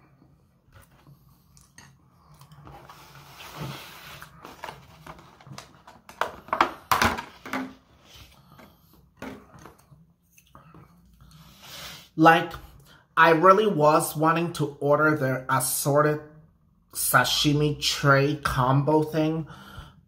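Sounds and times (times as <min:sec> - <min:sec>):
quiet chewing: 0:00.7 - 0:03.0.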